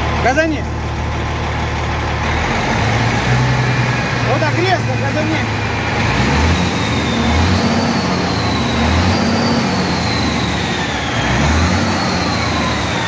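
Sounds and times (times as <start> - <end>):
diesel truck engine revving: 0.0 - 13.0
turbocharger whine: 0.0 - 13.0.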